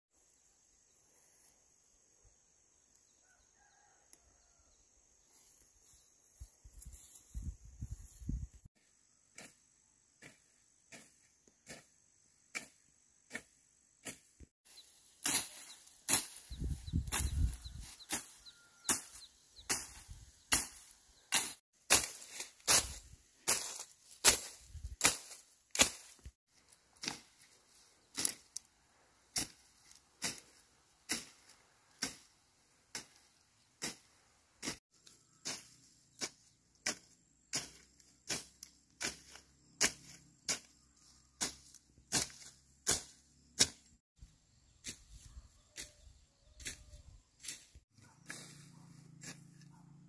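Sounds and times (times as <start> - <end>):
sharp chopping strikes: 18.9 - 26.3, 41.4 - 43.9.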